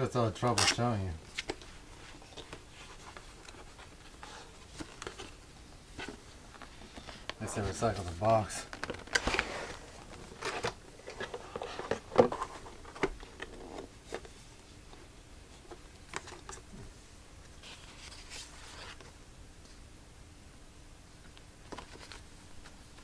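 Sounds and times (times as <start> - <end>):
paper sliding rustle: 6.0 - 14.2, 17.6 - 19.1.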